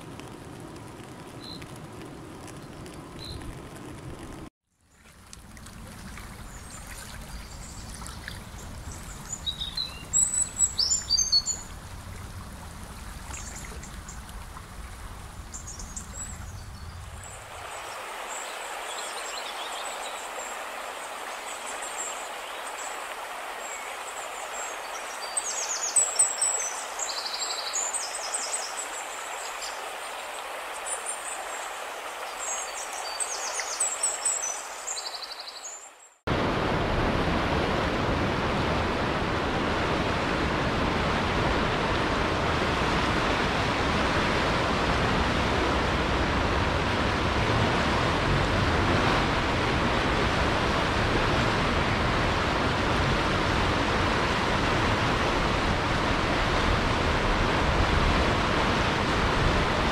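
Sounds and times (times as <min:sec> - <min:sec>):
flowing river water: 0:00.0 - 0:59.9.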